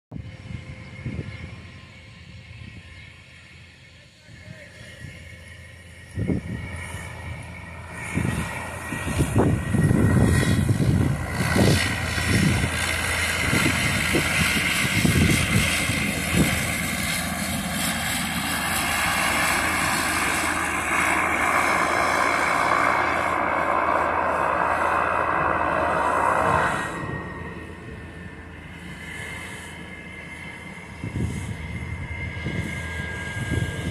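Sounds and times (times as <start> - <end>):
propeller drone: 0.1 - 33.9
turbine whine: 0.1 - 33.9
turboprop engine running: 0.1 - 33.9
low gusty rumbles: 6.2 - 28.8.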